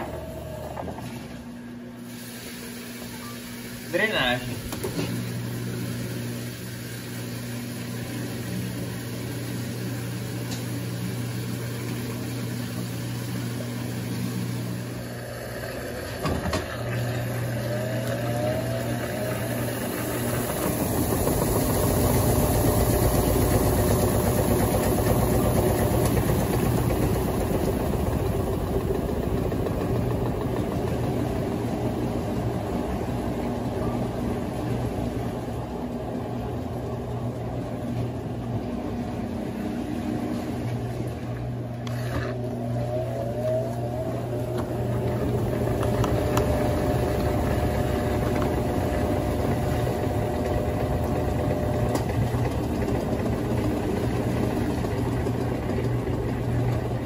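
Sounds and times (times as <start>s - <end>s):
washing machine humming and churning: 0.0s - 57.0s.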